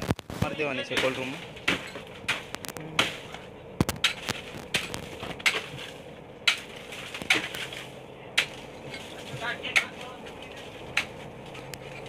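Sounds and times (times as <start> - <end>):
axe chopping ice: 0.9 - 8.6.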